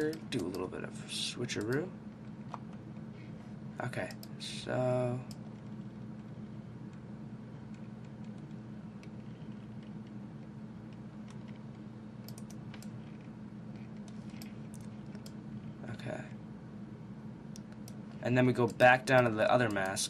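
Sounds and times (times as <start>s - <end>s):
steady low hum: 0.0s - 20.0s
computer mouse and keyboard clicks: 10.9s - 15.4s.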